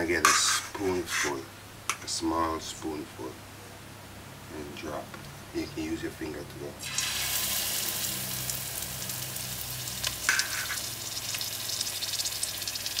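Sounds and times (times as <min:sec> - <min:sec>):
batter sizzling in hot oil: 0:06.8 - 0:13.0
oil crackling and spitting: 0:06.8 - 0:13.0.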